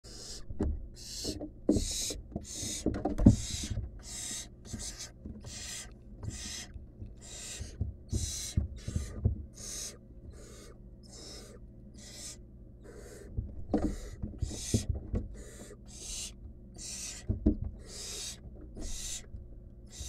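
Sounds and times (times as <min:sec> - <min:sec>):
owl nestlings hissing calls: 0:00.0 - 0:19.3
thumps and scuffles of birds: 0:00.5 - 0:04.0, 0:04.7 - 0:09.6, 0:13.3 - 0:15.4, 0:17.2 - 0:17.8.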